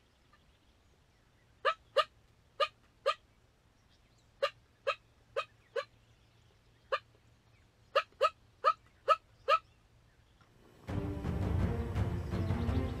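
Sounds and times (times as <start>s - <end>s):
turkey yelping: 1.6s - 3.2s, 4.4s - 6.0s, 6.9s - 7.1s, 7.9s - 9.7s.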